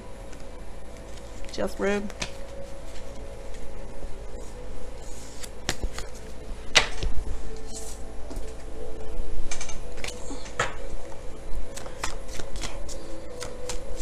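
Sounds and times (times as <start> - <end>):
faint background music: 0.0 - 14.0
cards shuffling: 1.0 - 3.6, 5.0 - 8.0, 11.7 - 14.0
cards snapping: 2.1 - 2.6, 5.3 - 6.2, 11.7 - 14.0.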